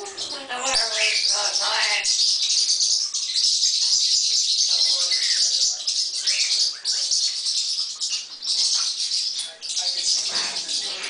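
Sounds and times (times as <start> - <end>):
parrots chattering: 0.0 - 11.0.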